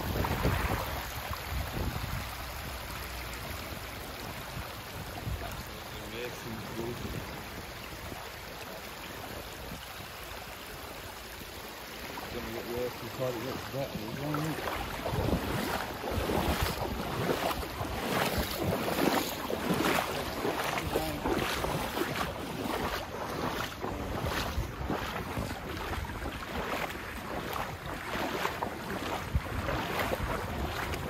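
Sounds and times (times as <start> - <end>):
wind buffeting microphone: 0.0 - 2.9, 14.2 - 31.0.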